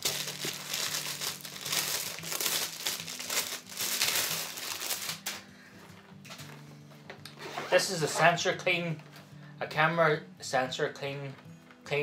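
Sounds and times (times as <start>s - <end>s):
plastic wrapping crinkling: 0.0s - 5.4s.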